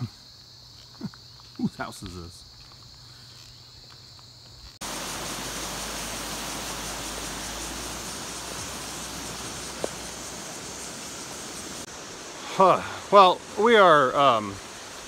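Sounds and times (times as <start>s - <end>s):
insect buzz: 0.0s - 15.0s
loud steady rushing noise: 4.8s - 12.3s.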